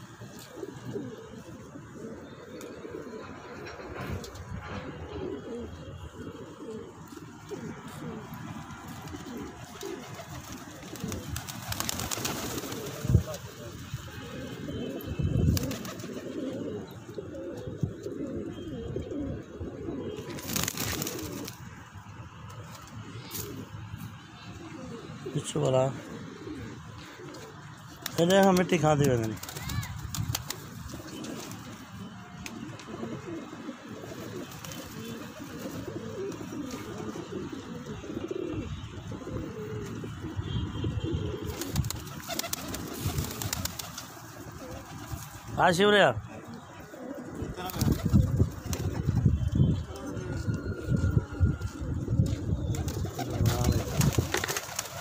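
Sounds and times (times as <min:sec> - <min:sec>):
pigeons cooing: 0:00.0 - 0:55.0
clicking and wing rustle: 0:08.9 - 0:13.1, 0:15.5 - 0:16.4, 0:41.5 - 0:45.4, 0:52.8 - 0:55.0.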